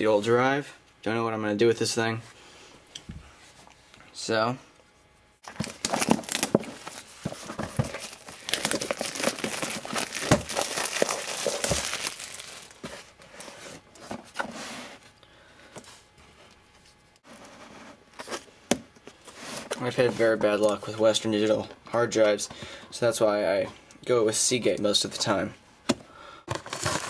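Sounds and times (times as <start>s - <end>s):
packing tape tearing: 5.4s - 7.1s, 7.7s - 12.8s
cardboard and packaging rustling: 5.4s - 15.0s, 26.5s - 27.0s.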